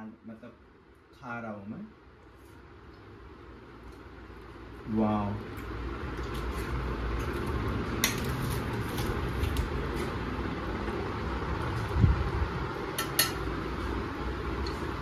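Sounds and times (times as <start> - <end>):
steady low hum: 0.0 - 15.0
metal spoon clinking on plate: 13.0 - 13.4.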